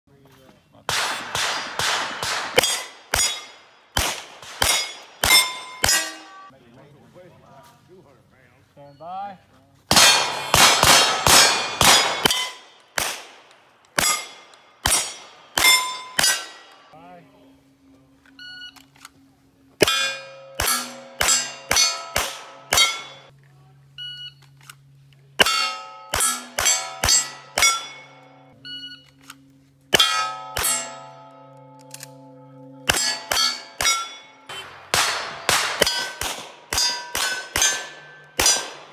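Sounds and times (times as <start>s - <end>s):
pistol shots: 0.9s - 6.2s, 9.9s - 16.7s, 19.8s - 23.2s, 32.9s - 38.9s
steel plates ringing: 2.6s - 3.7s, 4.6s - 6.5s, 14.0s - 16.9s, 19.8s - 23.3s, 25.4s - 28.6s, 29.9s - 38.9s
electronic beep: 18.3s - 18.9s, 28.6s - 29.2s.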